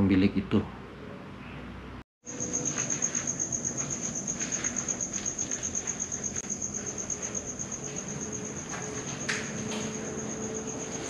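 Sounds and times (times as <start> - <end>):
cricket trilling: 2.2 - 11.0
faint scuffing footsteps: 2.4 - 10.0.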